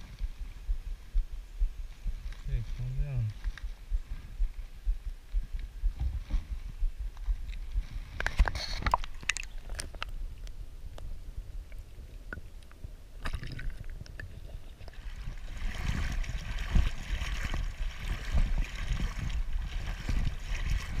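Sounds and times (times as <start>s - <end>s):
water splashing: 7.3s - 10.1s, 13.2s - 21.0s
sloshing water rush: 13.2s - 21.0s
muffled underwater gurgling: 13.4s - 21.0s.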